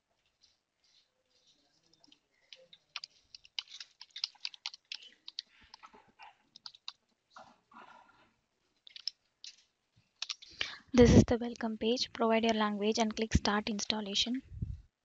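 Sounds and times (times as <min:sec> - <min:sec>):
keyboard typing clicks: 0:02.5 - 0:05.9, 0:06.6 - 0:07.0, 0:08.9 - 0:09.1, 0:10.2 - 0:10.7.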